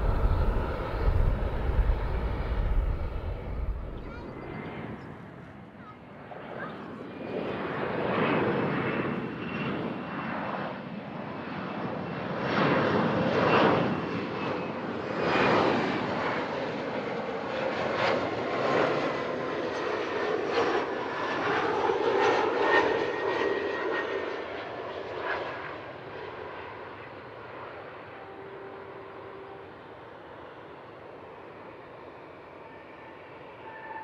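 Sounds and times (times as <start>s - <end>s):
faint high whine: 0.0s - 5.4s, 27.7s - 34.0s
jet engines roaring past: 0.0s - 34.0s.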